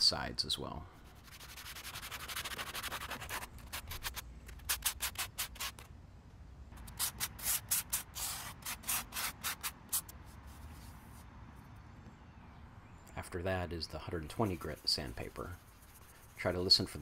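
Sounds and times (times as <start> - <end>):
sandpaper scrubbing steel griddle: 1.3 - 4.1, 14.1 - 17.0.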